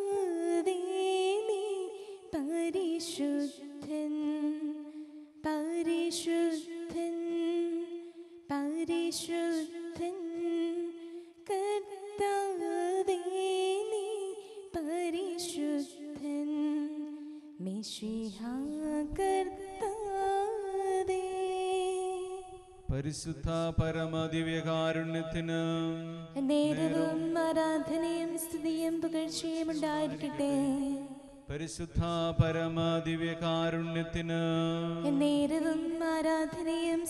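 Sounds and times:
low chant-like sound: 0:22.9 - 0:28.7
slow hymn singing: 0:26.2 - 0:30.9.

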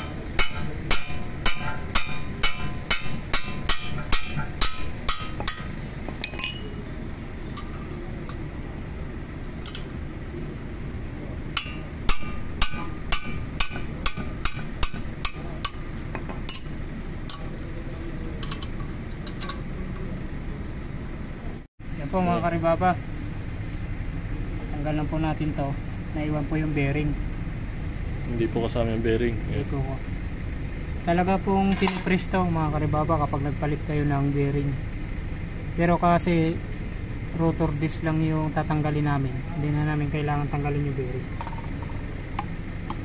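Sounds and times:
hammer striking metal wrench: 0:00.0 - 0:06.8, 0:07.5 - 0:08.4, 0:09.6 - 0:09.9, 0:11.6 - 0:17.6, 0:18.4 - 0:19.7.

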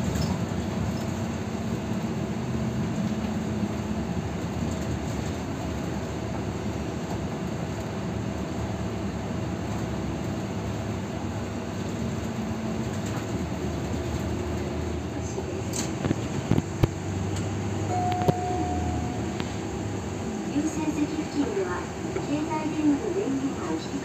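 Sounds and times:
bus engine and road rumble: 0:00.0 - 0:24.0
short one-tone beep: 0:17.9 - 0:19.4.

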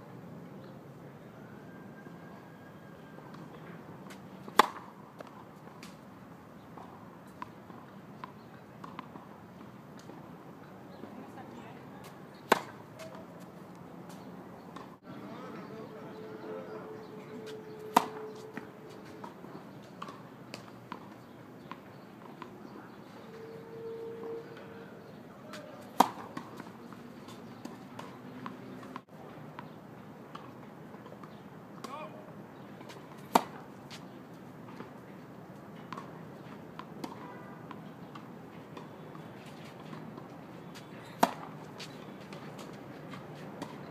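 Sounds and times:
tennis racket hitting ball: 0:04.5 - 0:05.3, 0:12.4 - 0:13.5, 0:17.4 - 0:19.3, 0:25.5 - 0:26.7, 0:33.1 - 0:33.7, 0:41.1 - 0:41.6.

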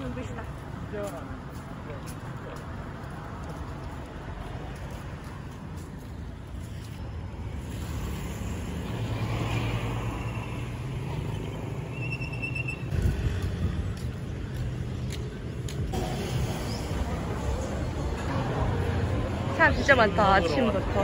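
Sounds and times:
street traffic: 0:00.0 - 0:21.0
bus engine hum: 0:10.1 - 0:21.0.

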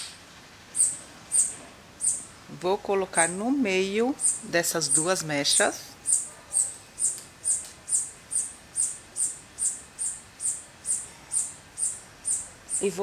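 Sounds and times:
small animal chirping: 0:00.8 - 0:02.3, 0:04.2 - 0:05.2, 0:06.0 - 0:13.0.

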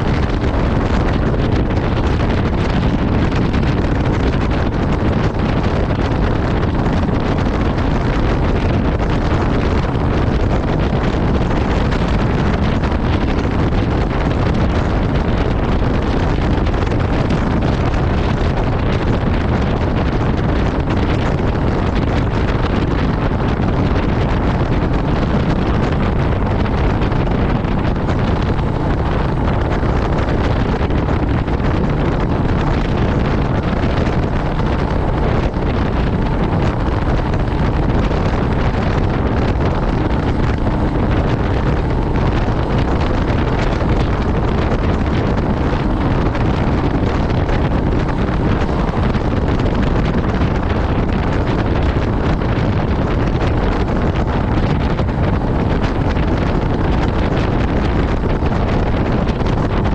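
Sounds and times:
motorcycle engine and tyre drone: 0:00.0 - 0:59.9
wind rushing over microphone: 0:00.0 - 0:59.9.

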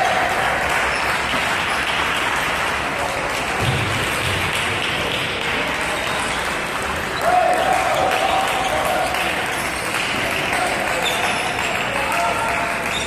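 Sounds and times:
spectators applauding: 0:00.0 - 0:13.0.

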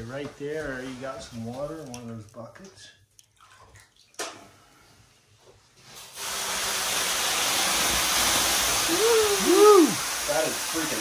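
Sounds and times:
water hissing into steam on hot rocks: 0:05.8 - 0:11.0.

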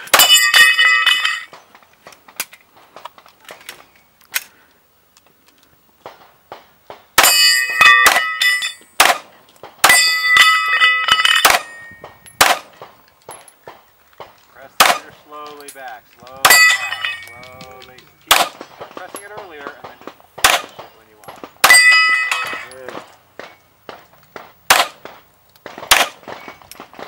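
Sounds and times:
steel plates clanging: 0:00.0 - 0:01.6, 0:07.2 - 0:08.9, 0:09.8 - 0:12.6, 0:14.9 - 0:19.8, 0:20.4 - 0:23.6
pistol shots: 0:06.0 - 0:15.6, 0:18.0 - 0:27.0.

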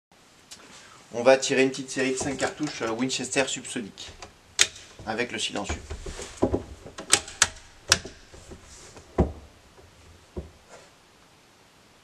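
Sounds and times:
dull knocks: 0:02.1 - 0:02.9, 0:04.0 - 0:10.7.

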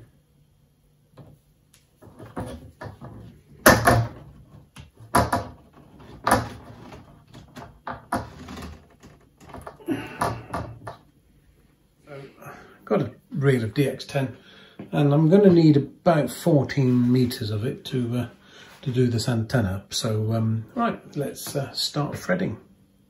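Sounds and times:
plastic pipe frame knocking on wood: 0:02.0 - 0:04.4, 0:05.1 - 0:06.6.

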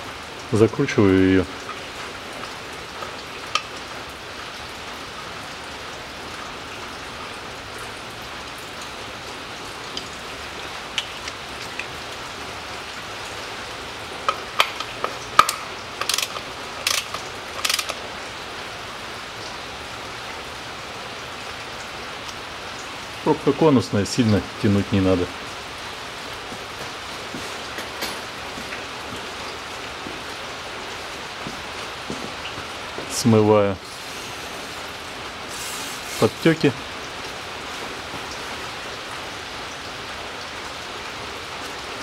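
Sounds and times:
ratchet rattling bursts: 0:14.4 - 0:18.0
ratchet wrench clicking: 0:14.6 - 0:18.0
steady hiss: 0:26.4 - 0:40.3.

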